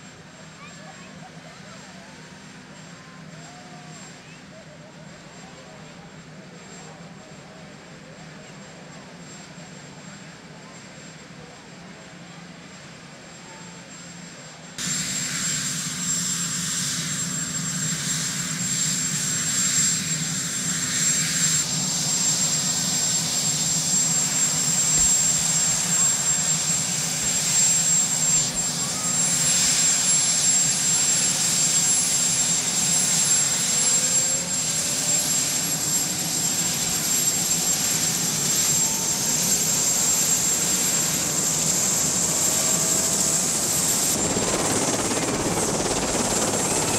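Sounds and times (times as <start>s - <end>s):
helicopter turbine engines whining: 0.0s - 46.9s.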